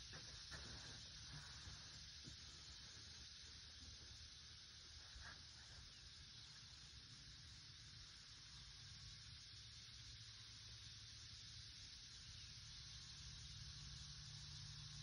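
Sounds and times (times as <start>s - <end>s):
faint steady hiss: 0.0s - 15.0s.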